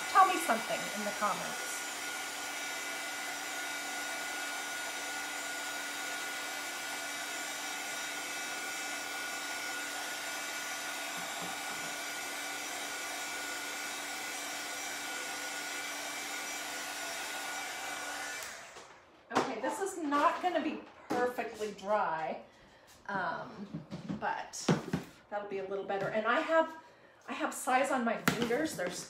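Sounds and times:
heat gun whirring: 0.0 - 19.1.

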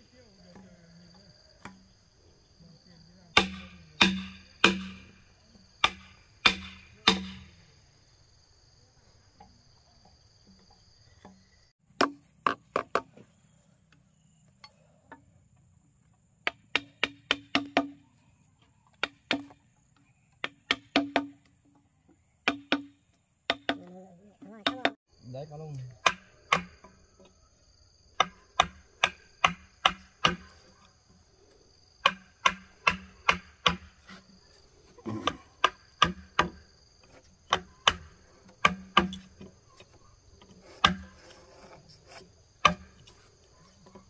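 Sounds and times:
insects droning: 0.0 - 44.0
hand tool striking wood: 3.4 - 5.2, 5.8 - 7.5, 10.4 - 13.2, 16.4 - 18.0, 18.9 - 19.7, 20.3 - 21.8, 22.4 - 23.9, 24.5 - 25.0, 26.0 - 27.0, 28.1 - 30.9, 32.0 - 34.4, 35.0 - 44.0.

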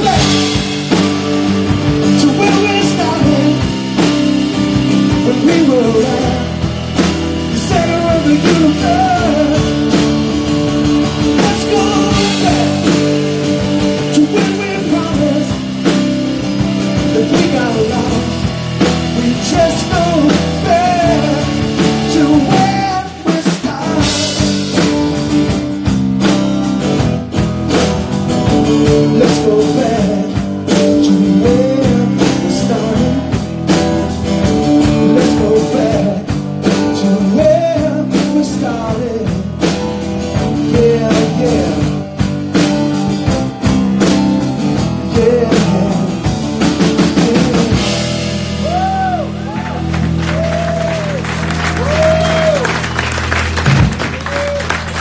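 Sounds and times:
male lead vocal: 0.0 - 10.3, 11.0 - 24.9, 28.6 - 42.4, 44.0 - 49.6
live rock band playing: 0.0 - 55.0.

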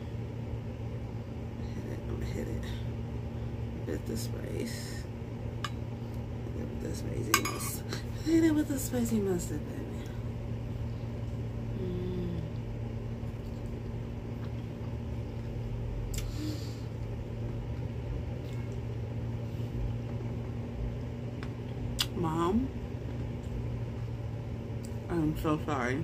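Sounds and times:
steady low hum: 0.0 - 26.0
woman humming: 11.7 - 12.8
person chewing food: 12.5 - 16.3.

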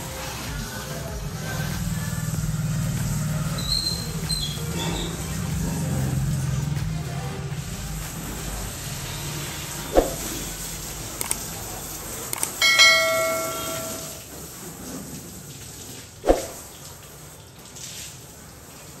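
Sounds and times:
light clicks: 11.2 - 11.4
bell-like chime: 12.6 - 14.2.

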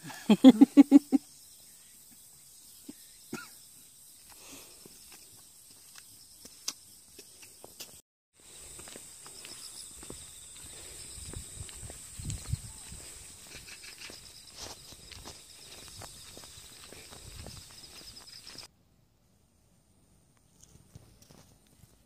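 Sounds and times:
footsteps on asphalt: 4.2 - 18.7.

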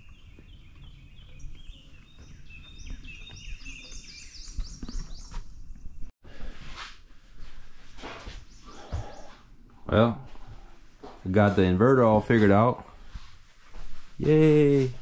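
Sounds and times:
bird singing whistled notes: 0.0 - 6.0.

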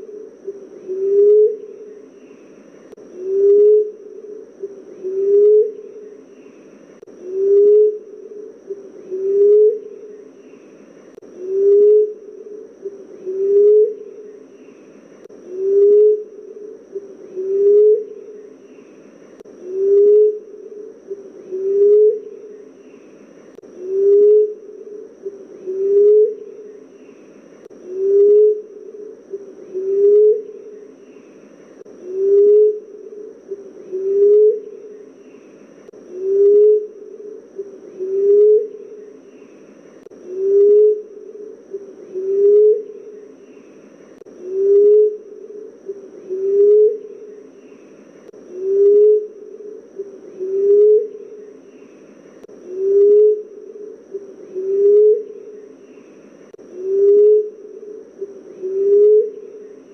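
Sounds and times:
dove hooting: 0.0 - 59.9.

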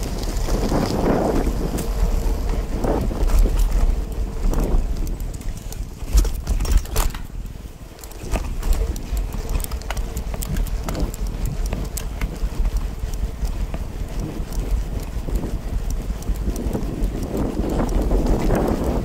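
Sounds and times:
bike clicks and rattles: 0.0 - 19.0
bike rolling on dirt: 0.0 - 19.0
wind on microphone: 0.0 - 19.0.

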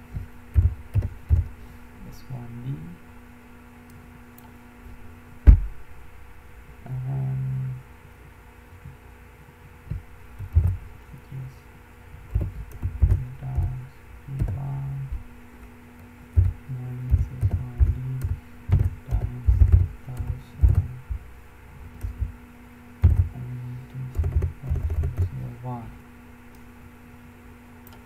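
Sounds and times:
computer keyboard typing: 0.5 - 1.5, 10.4 - 10.8, 12.3 - 13.7, 16.4 - 20.9, 23.0 - 23.4, 24.1 - 25.4.

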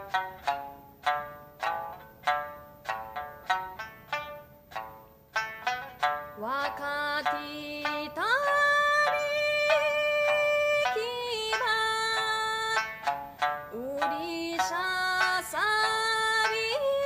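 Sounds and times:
plucked lute: 0.0 - 17.0
woman singing folk song: 6.1 - 17.0.

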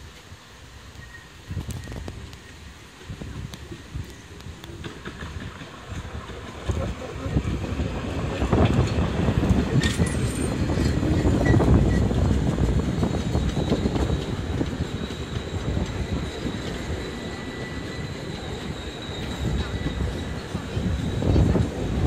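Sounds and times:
faint high squeal: 0.9 - 2.6, 9.5 - 22.0
train wheels clattering on rails: 0.9 - 22.0.

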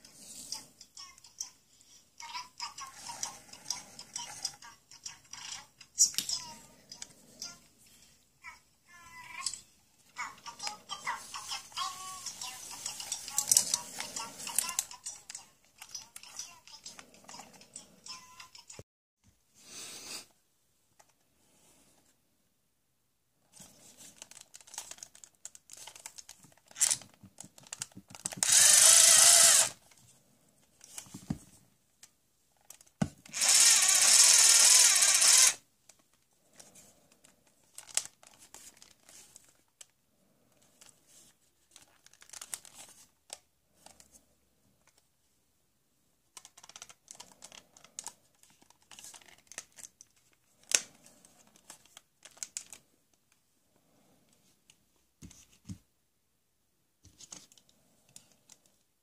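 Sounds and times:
toy power screwdriver running: 2.7 - 4.7, 10.5 - 17.6, 26.7 - 27.0, 28.2 - 29.8, 33.3 - 35.6
plastic clicks and rattling: 12.8 - 17.8, 24.0 - 30.0, 46.3 - 52.8.

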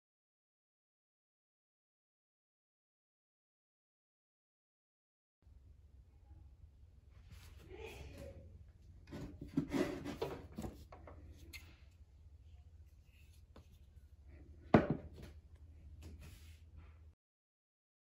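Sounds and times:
low hum: 5.4 - 17.2
objects knocking on wooden desk: 14.7 - 15.4.

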